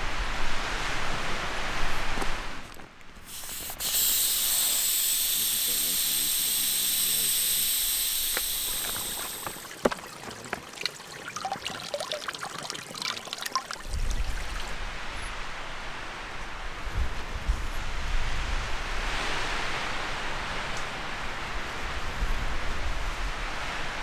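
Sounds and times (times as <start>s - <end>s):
air hissing through valve: 3.2s - 10.0s
water trickling and dripping: 3.2s - 14.8s
wind rumble on microphone: 13.8s - 24.0s.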